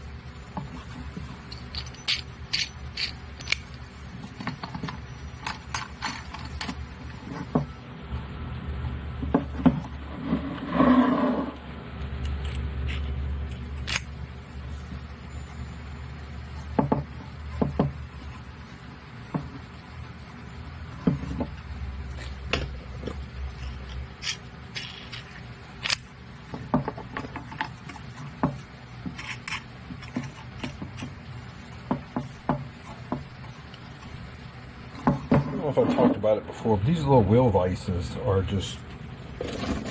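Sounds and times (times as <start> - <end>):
low steady hum: 0.0 - 39.9
wooden parts clicking and knocking: 1.2 - 6.8
scraping on workbench: 9.6 - 11.6, 39.4 - 39.9.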